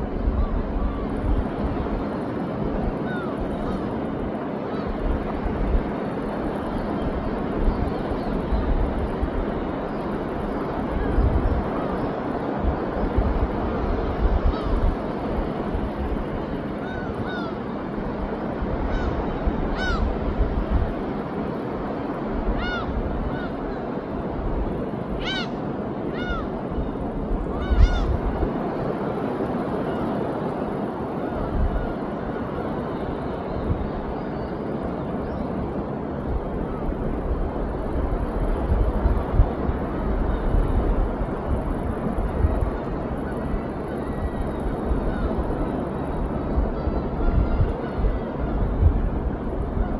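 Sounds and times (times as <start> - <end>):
surf rumbling: 0.0 - 49.9
wind: 0.0 - 49.9
bird calling: 3.0 - 3.9, 16.8 - 17.8, 18.9 - 20.1, 22.6 - 23.9, 25.2 - 28.3.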